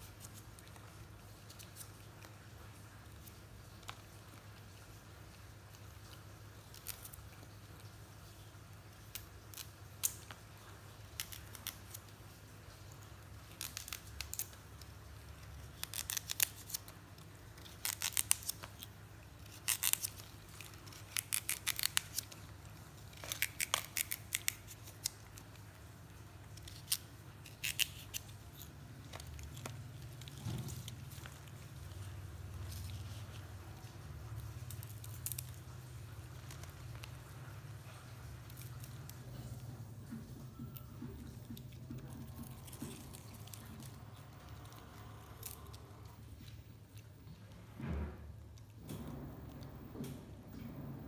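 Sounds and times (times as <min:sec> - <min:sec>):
low steady hum: 0:28.2 - 0:51.0.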